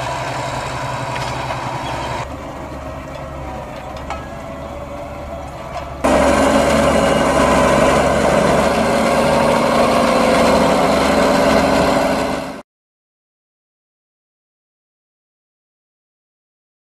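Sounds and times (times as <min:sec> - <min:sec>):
tractor diesel engine running: 0:00.0 - 0:12.6.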